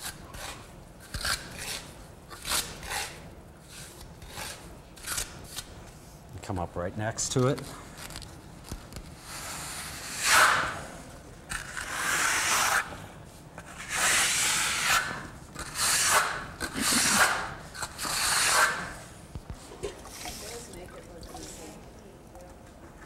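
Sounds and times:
trowel scraping plaster on wall: 0.0 - 5.6, 9.2 - 10.9, 11.5 - 12.9, 13.7 - 19.1.

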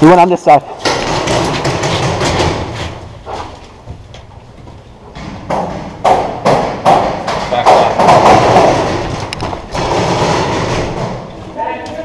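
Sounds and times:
footsteps: 0.6 - 12.0
sharp knocks: 0.8 - 3.5, 5.1 - 11.3.

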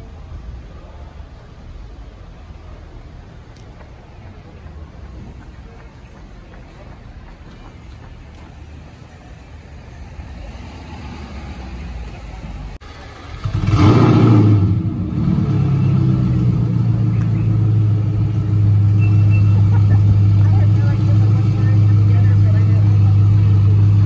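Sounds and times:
car engine starting and idling: 9.2 - 24.0.

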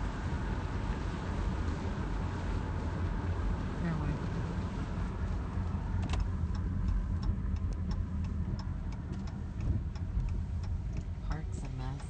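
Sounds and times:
car interior low rumble: 0.0 - 12.0
regular ticking: 5.3 - 12.0.

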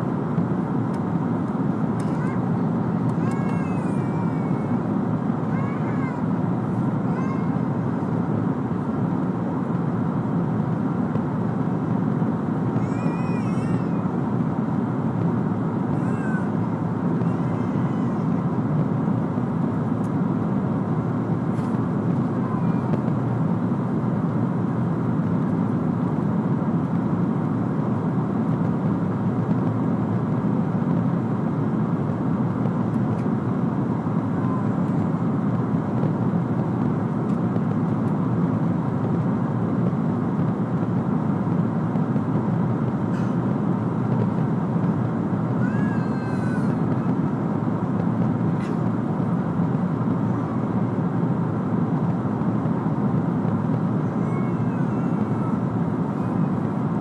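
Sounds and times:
airplane cabin airflow and engines: 0.0 - 57.0
faint high wavering cries: 12.8 - 14.1, 45.5 - 47.3, 54.0 - 56.8.

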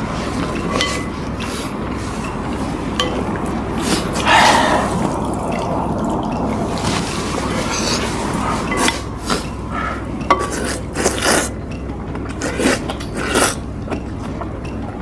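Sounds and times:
noodles being slurped: 10.4 - 11.6, 12.3 - 13.7.

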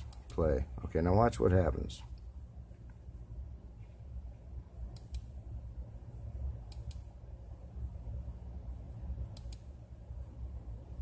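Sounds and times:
steady low hum: 0.0 - 11.0
computer mouse clicks: 4.9 - 5.3, 6.7 - 7.1, 9.3 - 9.7.

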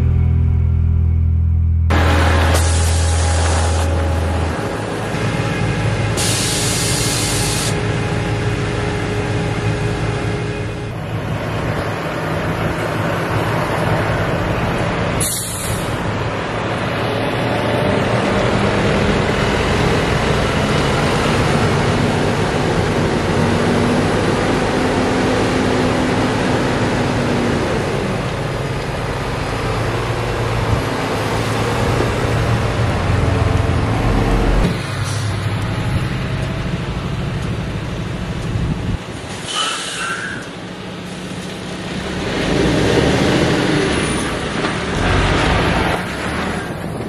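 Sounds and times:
tractor diesel engine running: 0.0 - 39.5
loud air hiss: 2.4 - 3.9, 6.2 - 7.8, 15.2 - 16.0, 39.3 - 40.4.

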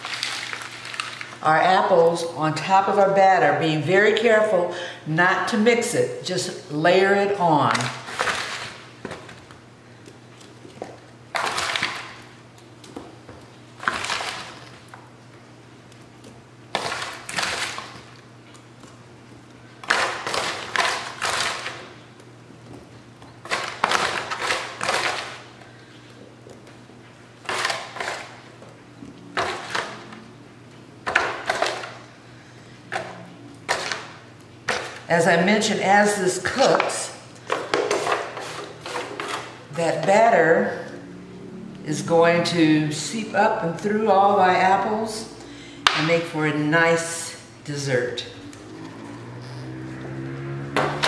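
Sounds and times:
aluminium foil crinkling: 0.0 - 1.4
wet apple slices rustling: 0.0 - 1.4
faint steady hum: 0.0 - 50.2.

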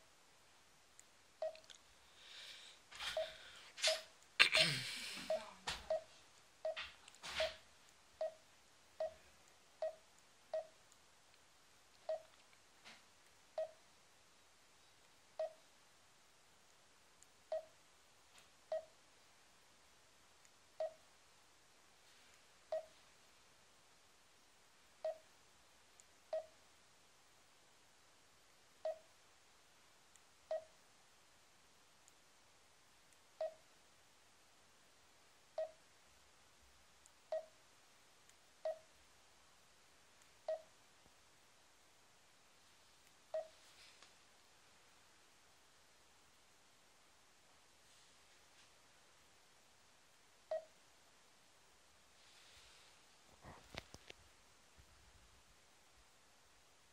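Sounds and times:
faint ticks: 0.9 - 1.9, 5.2 - 8.4, 9.0 - 13.9, 15.0 - 15.7, 16.7 - 17.8, 18.4 - 19.0, 20.4 - 21.1, 22.3 - 23.0, 25.0 - 26.6, 28.5 - 29.2, 30.1 - 30.9, 33.1 - 33.7, 35.6 - 35.9, 37.0 - 37.6, 38.2 - 38.9, 43.0 - 44.1, 50.5 - 50.8
short mid-pitched beeps: 43.4 - 43.6.

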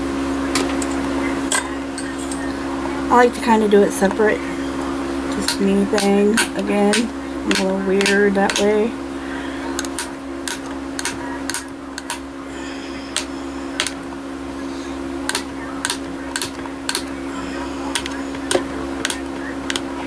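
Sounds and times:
blade tapping on work surface: 5.5 - 8.7.

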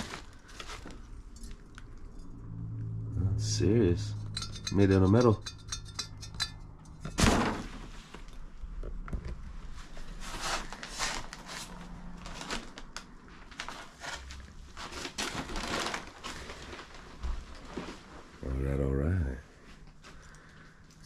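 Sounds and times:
heavy metal piece knocking down: 7.0 - 7.9
small crackles: 10.6 - 18.3.

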